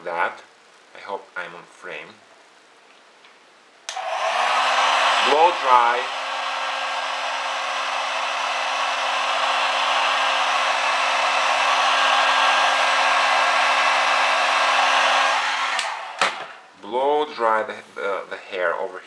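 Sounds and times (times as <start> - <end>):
blow dryer blowing: 3.9 - 16.7.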